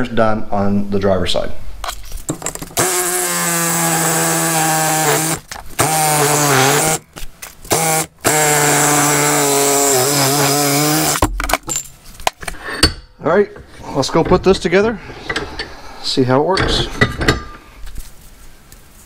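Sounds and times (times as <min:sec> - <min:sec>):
reciprocating saw cutting steel pipe: 0:02.8 - 0:07.0, 0:07.7 - 0:11.2.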